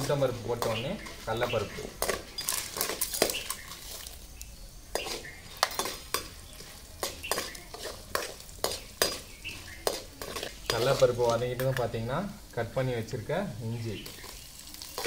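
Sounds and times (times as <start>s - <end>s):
soft sizzle: 0.0s - 15.0s
ladle scraping metal pan: 4.9s - 11.4s.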